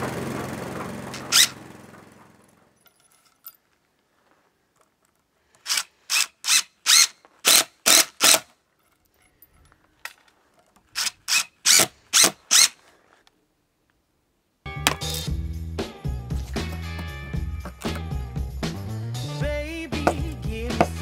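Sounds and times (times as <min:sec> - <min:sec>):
cordless drill spinning up: 0:01.0 - 0:01.6, 0:05.6 - 0:08.4, 0:10.8 - 0:13.0.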